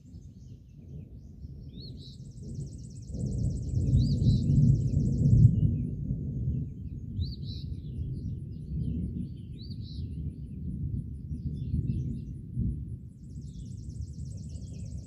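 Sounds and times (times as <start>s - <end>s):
thunder rumbling: 0.0s - 15.0s
bird chirping: 13.2s - 15.0s.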